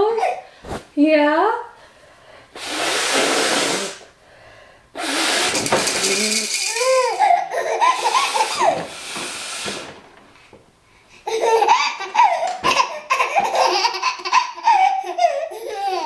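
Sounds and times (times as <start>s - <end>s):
woman blowing her nose: 2.5s - 4.1s, 4.9s - 10.0s
baby laughing: 6.1s - 8.8s, 11.2s - 16.0s.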